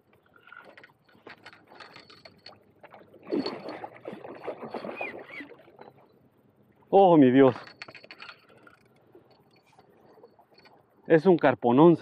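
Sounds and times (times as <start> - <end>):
fish thrashing water splashing: 2.8 - 5.9.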